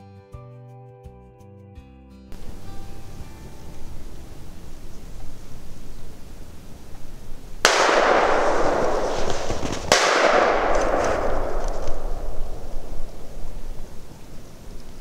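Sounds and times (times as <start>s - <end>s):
steady hissing noise: 2.3s - 15.0s
crashing hits: 7.6s - 14.8s.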